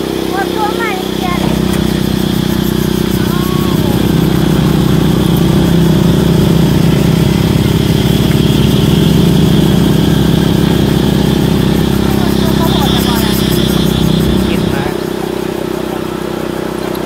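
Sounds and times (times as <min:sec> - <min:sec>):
motorcycle engine droning: 0:00.0 - 0:17.0.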